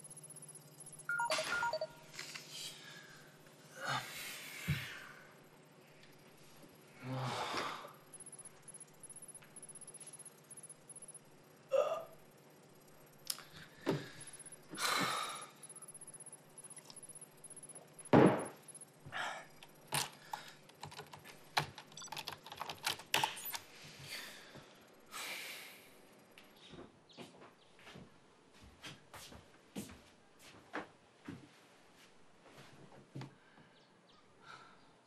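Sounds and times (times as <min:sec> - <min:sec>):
keyboard keys tapping: 0:19.6 - 0:23.6.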